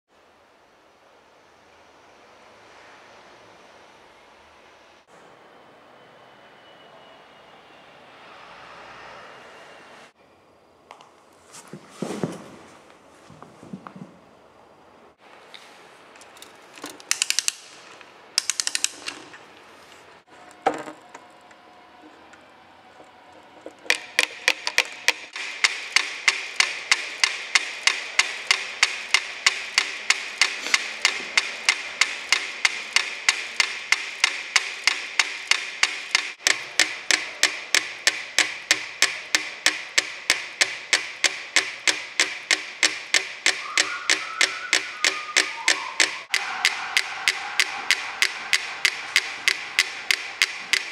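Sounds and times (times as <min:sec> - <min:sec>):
brief knocks and rustles: 0:11.6 - 0:14.2
metronomes ticking: 0:23.9 - 0:50.9.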